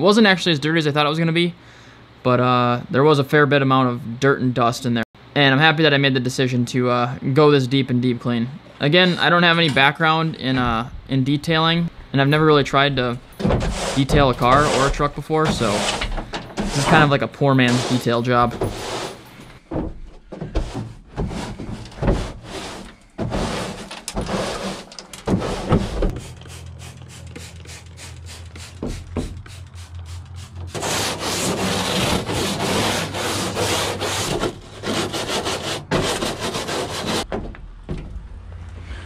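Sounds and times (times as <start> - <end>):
scrub brushes scrubbing plastic: 13.4 - 19.3, 20.6 - 37.3.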